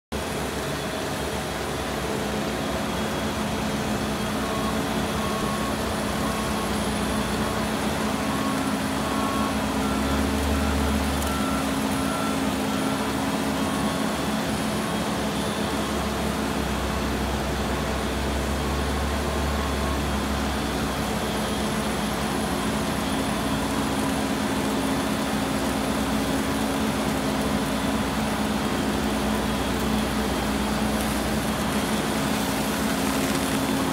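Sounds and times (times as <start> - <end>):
machine engine and conveyor hum: 0.1 - 33.9.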